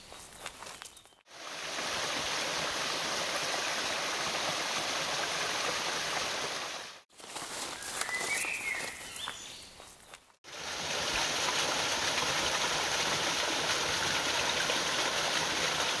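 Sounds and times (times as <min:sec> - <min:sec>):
quiet water noise: 0:01.3 - 0:07.0, 0:10.5 - 0:16.0
waterfall splashing into pool: 0:01.3 - 0:07.0, 0:10.5 - 0:16.0.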